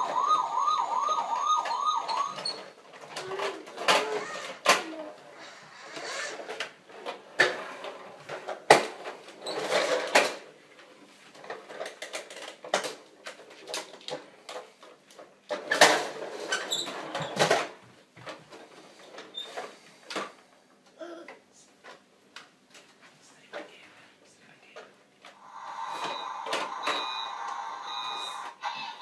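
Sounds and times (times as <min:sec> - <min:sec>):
toy vehicles rolling on wooden floor: 0:00.0 - 0:20.5, 0:25.2 - 0:29.0
plastic toy clicks and knocks: 0:11.5 - 0:16.1.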